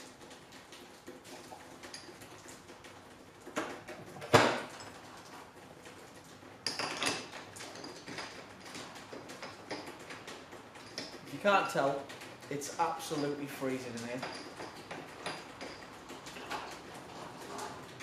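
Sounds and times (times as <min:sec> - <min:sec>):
metal tooling clinking and knocking: 0:06.6 - 0:18.0.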